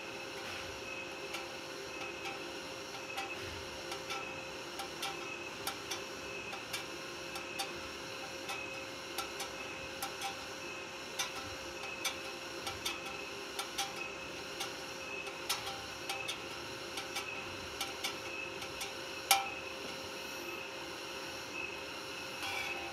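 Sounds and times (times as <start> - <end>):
steady hum: 0.0 - 22.9
electrode tapping on metal tube: 11.2 - 19.6.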